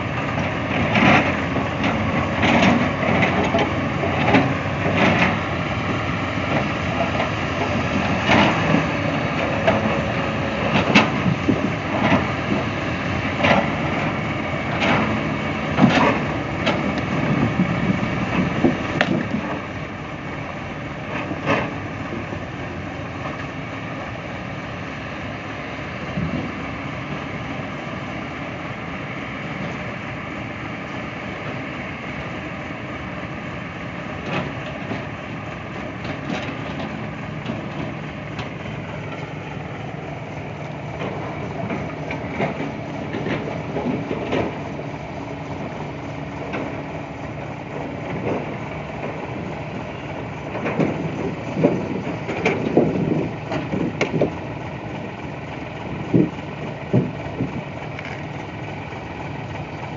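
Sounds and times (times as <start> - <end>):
heavy diesel engines running: 0.0 - 59.9
logs knocking and clattering: 18.4 - 19.6.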